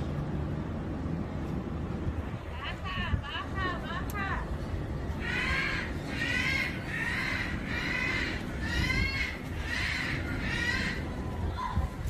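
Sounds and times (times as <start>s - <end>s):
steady wind noise: 0.0s - 12.0s
animal harsh repeated calls: 5.2s - 11.2s.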